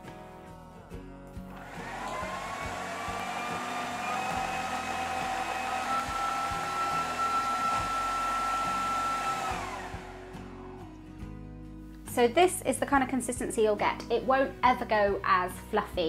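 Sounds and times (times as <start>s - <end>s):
food processor motor whining: 1.6s - 10.9s.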